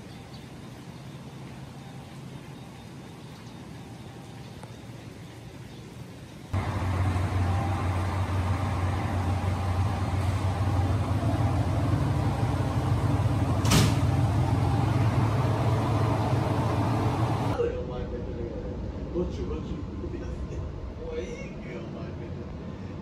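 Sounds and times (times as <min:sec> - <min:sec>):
train rumbling: 0:06.6 - 0:23.0.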